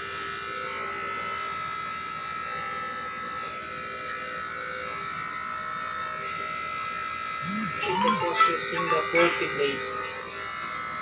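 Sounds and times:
electric clippers running: 0.0s - 6.1s, 6.9s - 7.8s.

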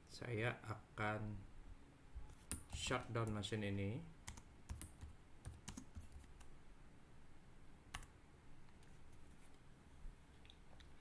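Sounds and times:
typing on keyboard: 4.3s - 6.5s.

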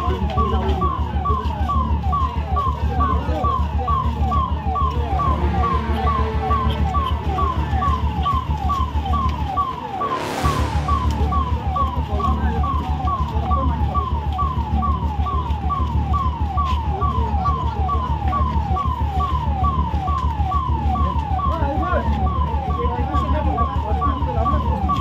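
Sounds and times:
emergency vehicle siren wailing: 0.0s - 25.0s
low engine drone: 5.2s - 13.5s.

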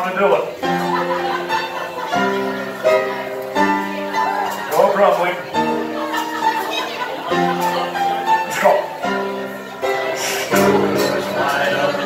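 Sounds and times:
upright piano chords: 0.0s - 12.0s.

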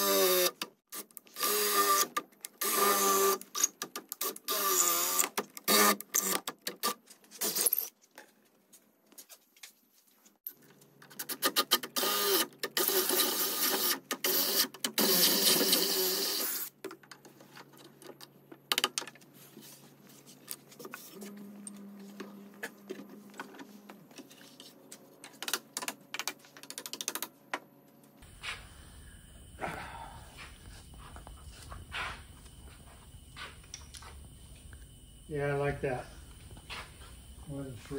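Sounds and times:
cordless drill boring into wood: 0.0s - 0.6s, 1.3s - 6.4s, 12.0s - 16.7s.

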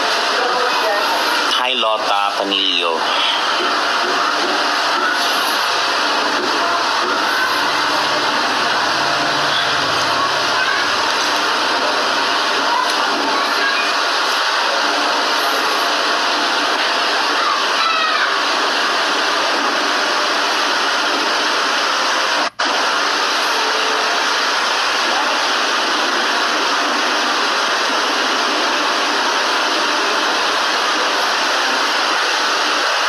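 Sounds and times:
loud rushing hiss: 4.6s - 19.5s.

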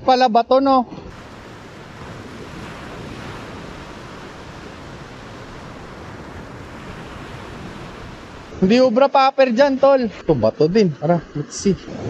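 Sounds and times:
surf breaking on beach: 1.0s - 10.0s.

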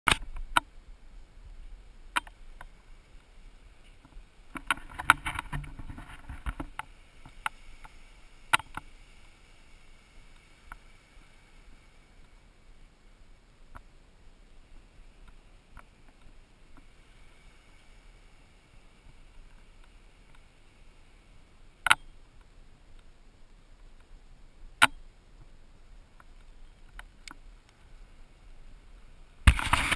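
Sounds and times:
faint steady hiss: 0.1s - 29.9s
light ticks: 2.1s - 9.4s, 10.3s - 11.1s, 12.2s - 12.4s, 15.2s - 17.9s, 21.8s - 23.1s, 23.8s - 24.2s, 26.1s - 28.0s.

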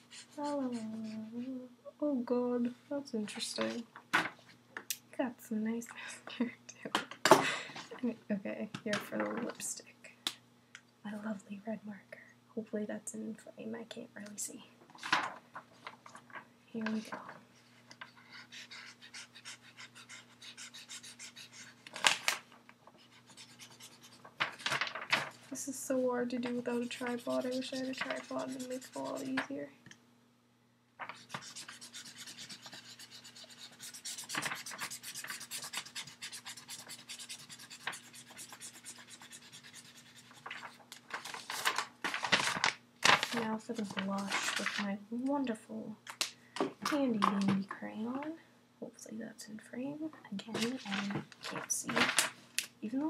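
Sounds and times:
marker scribbling on paper: 0.0s - 1.2s, 18.2s - 21.8s, 23.0s - 24.2s, 26.5s - 29.4s, 31.2s - 40.4s
paper scraping: 26.4s - 29.4s, 31.0s - 44.8s.

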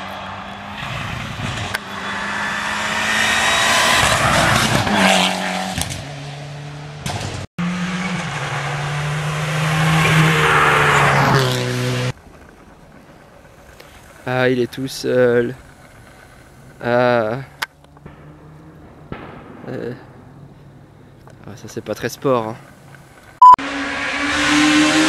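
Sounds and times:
rally car engine passing: 0.0s - 14.2s, 17.8s - 19.2s, 23.5s - 25.0s
rally car engine shifting gears: 0.1s - 12.2s, 23.6s - 25.0s.

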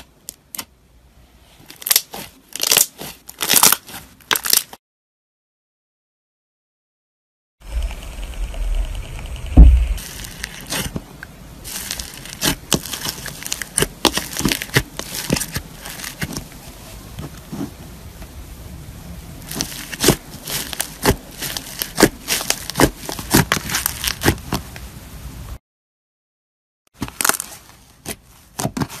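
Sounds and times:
slime crackling and popping: 1.7s - 4.8s, 7.7s - 16.5s, 19.4s - 24.8s, 27.0s - 29.0s
dull bump: 7.8s - 10.0s.

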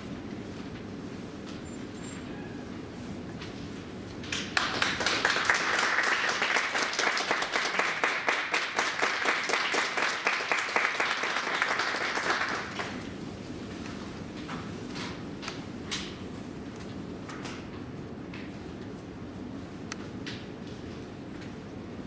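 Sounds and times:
audience applauding: 4.3s - 13.0s.

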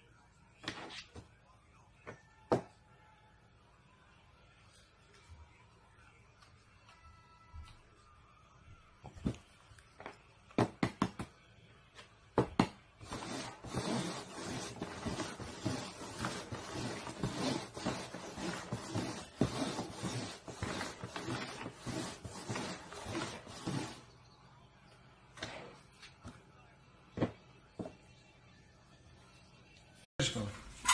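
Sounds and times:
cups scraping on cardboard: 13.0s - 24.2s.

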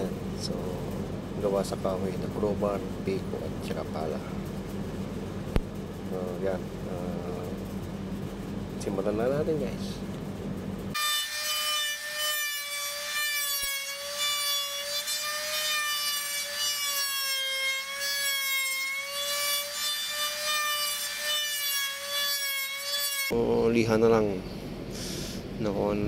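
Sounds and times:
trim router cutting wood: 11.0s - 23.4s.

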